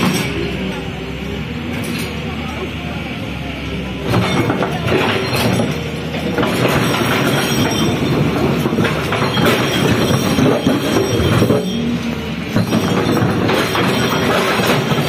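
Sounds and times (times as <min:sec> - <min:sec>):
excavator engine under load: 0:00.0 - 0:15.0
grinding and scraping: 0:04.0 - 0:15.0
metal clanking: 0:04.1 - 0:15.0.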